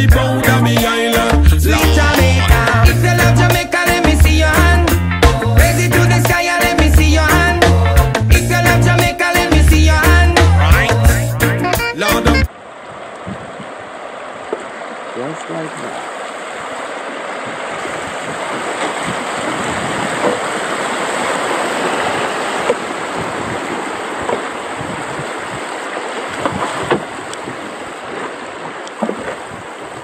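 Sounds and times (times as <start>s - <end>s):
river water rushing over rocks: 12.5s - 30.0s
short knocks and splashes: 13.0s - 30.0s.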